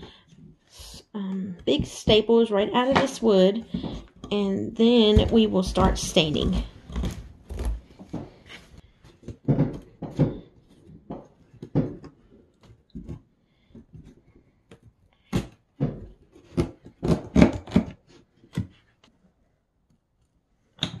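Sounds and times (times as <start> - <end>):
wooden frame knocking and scraping: 1.8 - 13.2.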